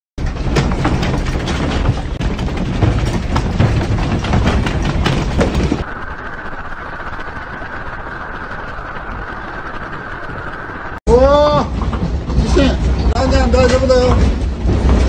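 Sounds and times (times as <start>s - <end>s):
objects rattling and knocking: 0.2s - 5.9s, 11.5s - 15.0s
low rumble: 0.2s - 15.0s.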